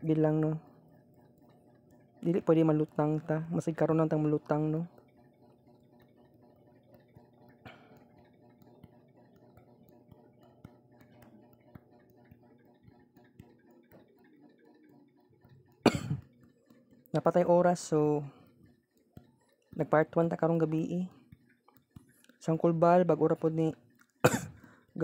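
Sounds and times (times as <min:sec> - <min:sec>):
faint steady hum: 0:00.0 - 0:25.0
person clearing throat: 0:15.9 - 0:16.3, 0:24.2 - 0:24.6.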